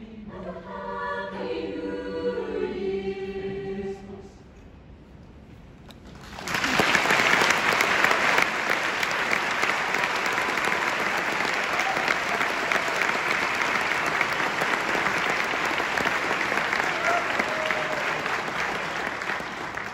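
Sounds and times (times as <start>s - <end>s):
audience applauding: 6.0s - 19.9s.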